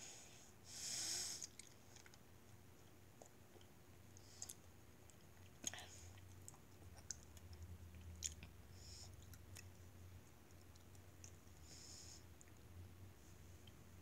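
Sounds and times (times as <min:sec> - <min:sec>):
low steady hum: 0:00.0 - 0:14.0
chewing mouth clicks: 0:01.4 - 0:02.2, 0:03.2 - 0:11.4.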